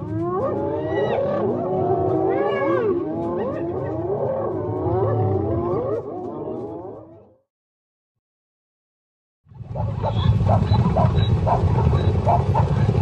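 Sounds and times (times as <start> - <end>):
hyenas yelping and giggling: 0.0 - 7.3, 9.8 - 13.0
low rumble: 9.5 - 13.0.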